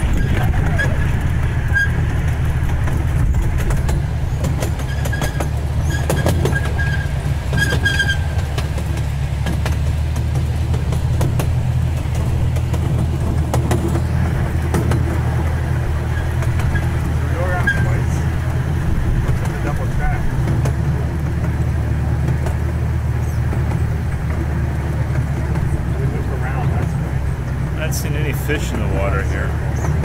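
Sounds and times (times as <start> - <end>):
miniature train rumbling on track: 0.0 - 30.0
faint high squeaks: 4.8 - 8.6.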